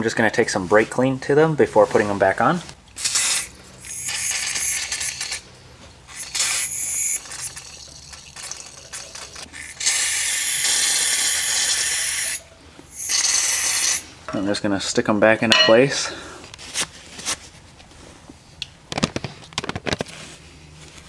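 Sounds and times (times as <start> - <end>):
aerosol spray hissing: 6.1 - 7.8, 13.0 - 14.1.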